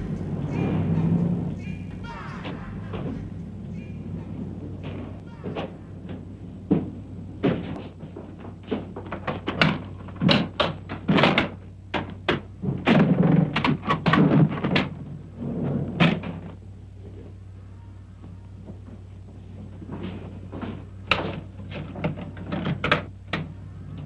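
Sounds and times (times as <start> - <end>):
hard objects banging: 0.0 - 16.6
steady low hum: 0.0 - 24.0.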